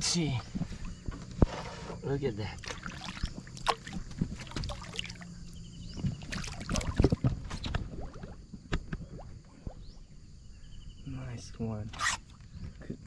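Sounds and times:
water splashing against boat: 0.4s - 10.0s
fish splashing: 2.6s - 9.8s.

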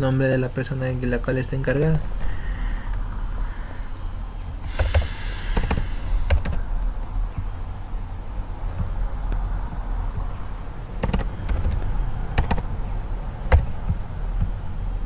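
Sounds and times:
steady low hum: 0.0s - 15.0s
computer keyboard typing: 4.8s - 5.0s, 5.6s - 6.6s, 11.0s - 12.7s, 13.5s - 13.9s.

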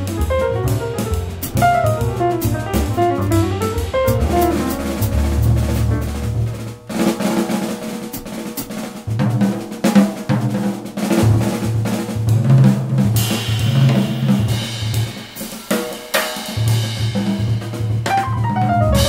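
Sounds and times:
bass line: 0.0s - 6.8s, 18.2s - 19.0s
drum kit playing quick strikes: 0.0s - 19.0s
held chords: 18.2s - 19.0s.

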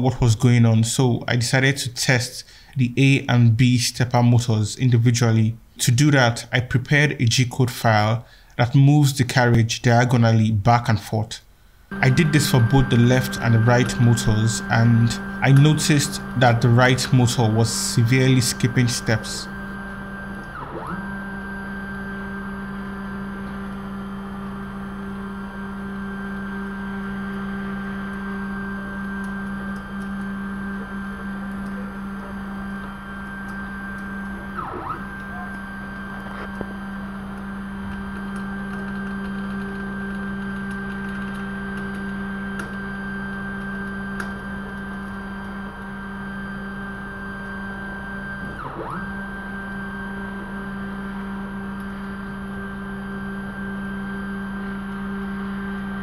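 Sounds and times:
stepper motors whining: 11.9s - 56.0s.

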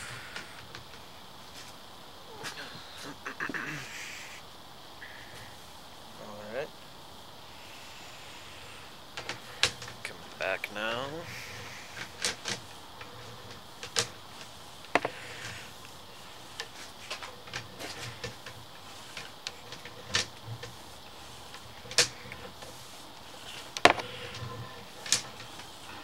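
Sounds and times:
faint steady hum: 0.0s - 26.0s
cable clicks and knocks: 16.5s - 25.8s.

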